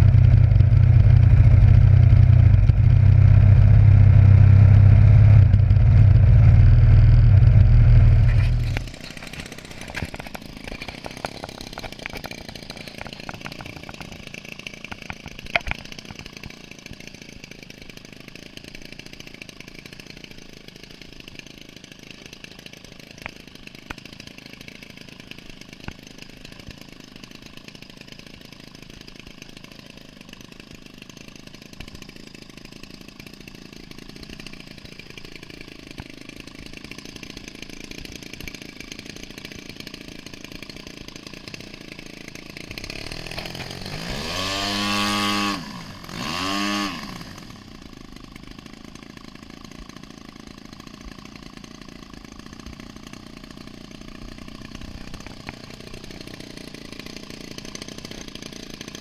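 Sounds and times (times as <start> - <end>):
engine revving: 0.0 - 14.0, 42.7 - 47.6
model plane engine idling: 0.0 - 59.0.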